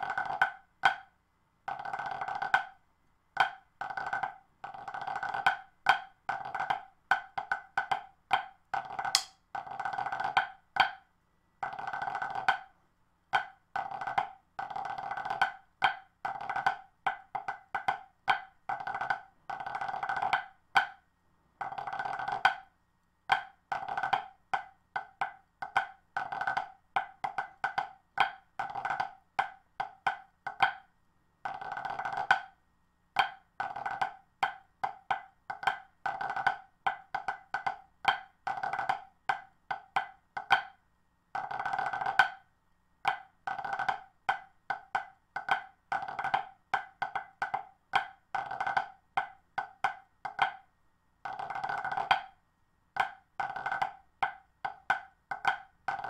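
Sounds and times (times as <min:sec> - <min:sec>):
drumsticks tapping practice pad: 0:03.4 - 0:11.0, 0:13.3 - 0:21.0, 0:23.3 - 0:32.6, 0:33.2 - 0:40.8, 0:41.4 - 0:42.4, 0:43.0 - 0:50.6, 0:51.2 - 0:52.4, 0:53.0 - 0:56.0.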